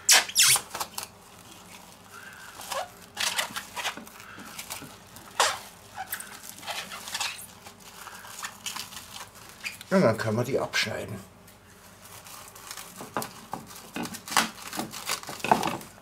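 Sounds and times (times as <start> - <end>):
cling film crinkling and squeaking: 0.0 - 16.0.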